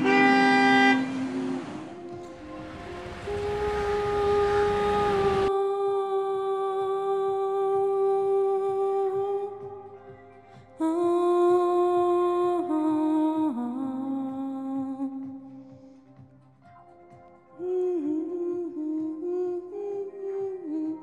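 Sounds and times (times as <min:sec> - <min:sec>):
slow melody of held notes: 0:00.0 - 0:10.1.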